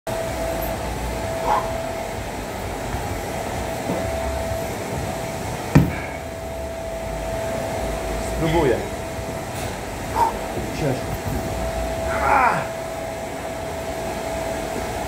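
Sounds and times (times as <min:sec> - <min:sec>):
ventilation hum: 0:00.1 - 0:15.0.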